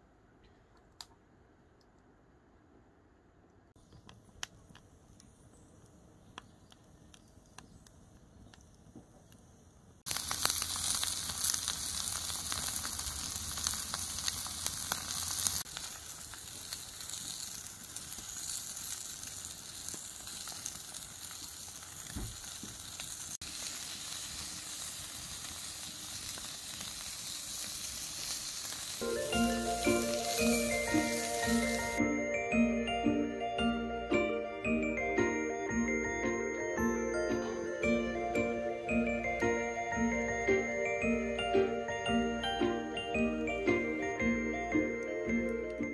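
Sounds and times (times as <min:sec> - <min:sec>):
fire crackling: 0:03.7 - 0:32.0, 0:37.1 - 0:45.9
steaks sizzling on griddle: 0:10.1 - 0:32.0.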